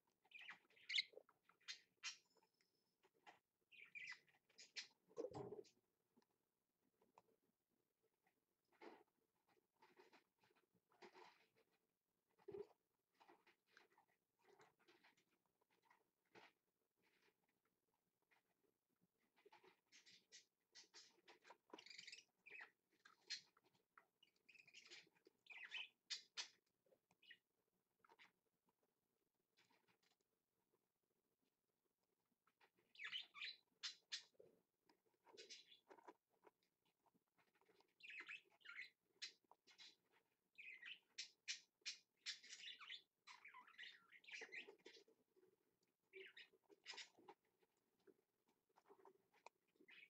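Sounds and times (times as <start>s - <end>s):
budgerigar chicks chirping: 0.3s - 2.2s, 3.7s - 5.4s, 32.9s - 34.6s.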